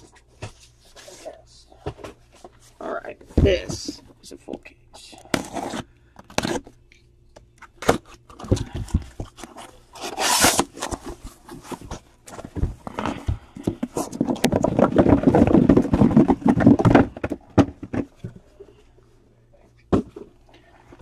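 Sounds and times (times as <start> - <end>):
cardboard scraping and rustling: 5.3 - 6.7, 7.9 - 18.0
tape tearing hiss: 10.0 - 10.8
dense rustling and knocking: 11.1 - 18.4.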